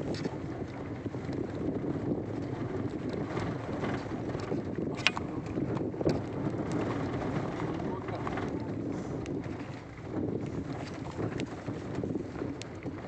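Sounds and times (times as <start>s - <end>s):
vehicle rumbling on dirt track: 0.0s - 13.0s
wind buffeting microphone: 0.0s - 13.0s.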